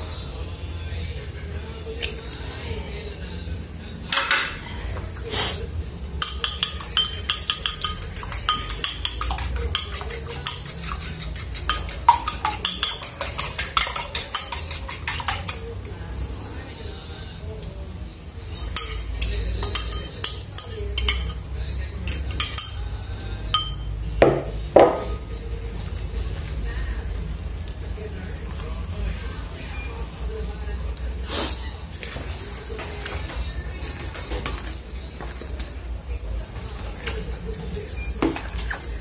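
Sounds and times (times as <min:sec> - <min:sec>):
fork clinking against bowl: 0:06.2 - 0:15.7, 0:18.7 - 0:22.9, 0:23.5 - 0:23.9
fork beating egg in bowl: 0:06.2 - 0:15.9, 0:18.7 - 0:21.4.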